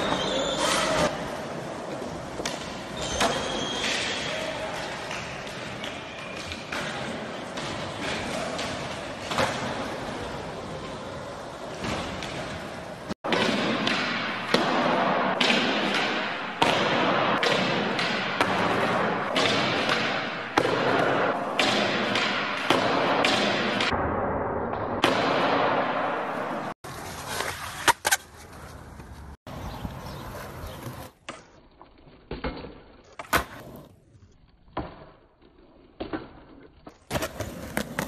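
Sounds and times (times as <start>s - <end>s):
skateboard wheels rolling: 0.0s - 13.8s, 25.8s - 38.0s.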